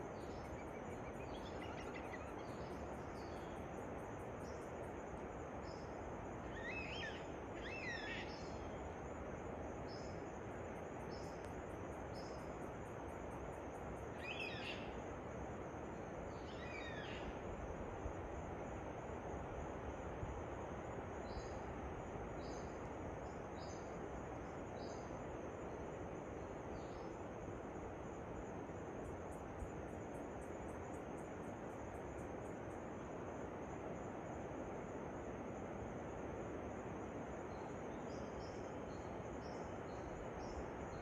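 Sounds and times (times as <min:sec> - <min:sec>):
sweeping bird calls: 0:06.5 - 0:08.7.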